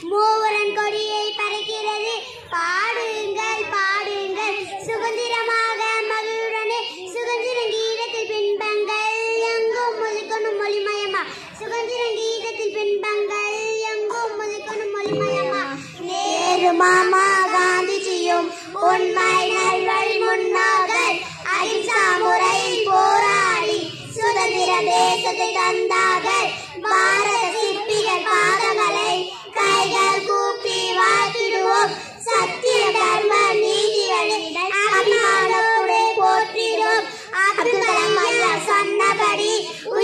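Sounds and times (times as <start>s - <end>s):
breaths between phrases: 11.2s - 11.6s, 18.5s - 18.8s, 31.9s - 32.2s, 37.0s - 37.4s
girls singing: 14.5s - 40.0s.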